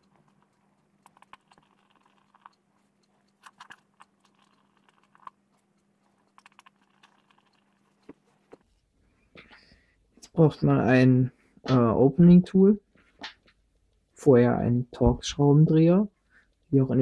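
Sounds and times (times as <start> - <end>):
faint steady hum: 0.0 - 17.0.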